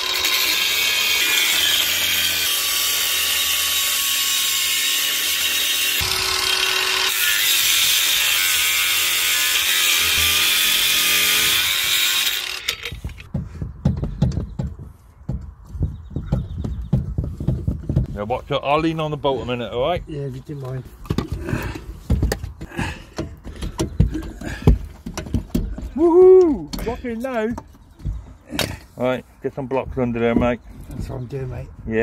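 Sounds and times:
angle grinder cutting steel: 0.0s - 13.3s.

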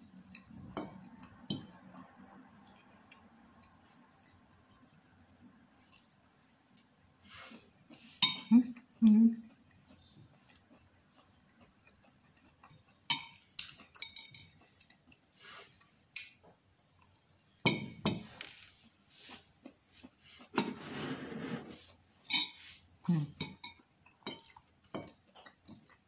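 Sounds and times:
eating noises: 0.0s - 17.6s
cutlery clinking on a plate: 12.7s - 14.6s, 22.3s - 22.7s.

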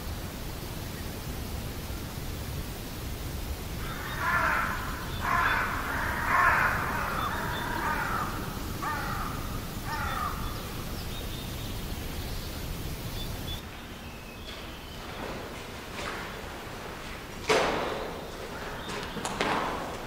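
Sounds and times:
steady background hiss: 0.0s - 20.0s
crow cawing: 3.8s - 10.9s.

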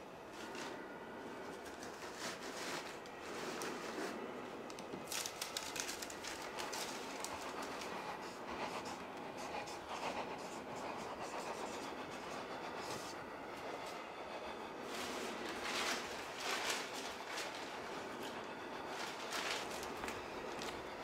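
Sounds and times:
steady rumbling noise: 0.0s - 21.0s
clothes and cardboard box rustling: 5.0s - 7.9s, 14.9s - 20.7s.

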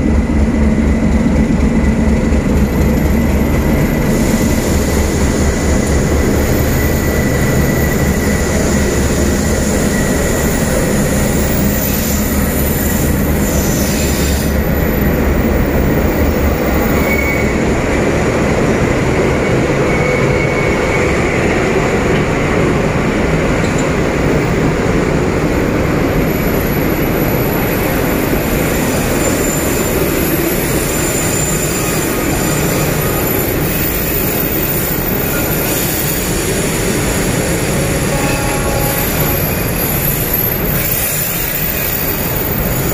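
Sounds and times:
diesel locomotive engine throbbing: 0.0s - 19.9s, 31.6s - 42.9s
echoing wheel-on-rail rumble: 0.0s - 42.9s.

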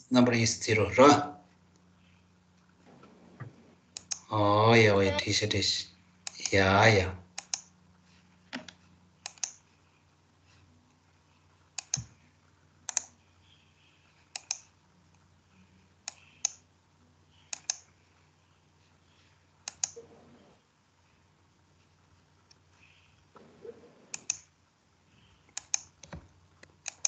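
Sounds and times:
faint steady hum: 0.0s - 27.0s
computer mouse clicking: 3.9s - 4.3s, 7.4s - 7.7s, 8.5s - 9.7s, 11.7s - 12.2s, 12.8s - 13.2s, 14.2s - 15.2s, 16.0s - 16.7s, 17.3s - 17.9s, 19.6s - 20.0s, 24.1s - 24.5s, 25.5s - 27.0s.

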